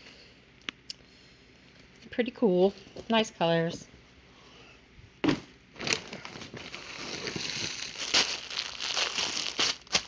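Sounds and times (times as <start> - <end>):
plastic packaging crinkling: 5.8 - 10.0.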